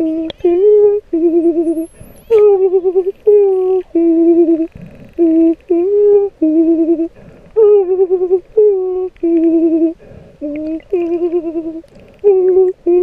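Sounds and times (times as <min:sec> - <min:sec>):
person humming: 0:00.0 - 0:13.0.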